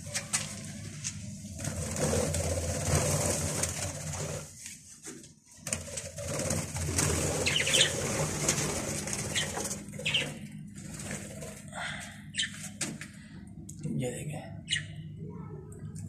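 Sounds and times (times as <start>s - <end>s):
budgerigars chirping: 7.4s - 8.0s, 9.3s - 10.4s, 12.3s - 12.6s, 14.6s - 15.0s.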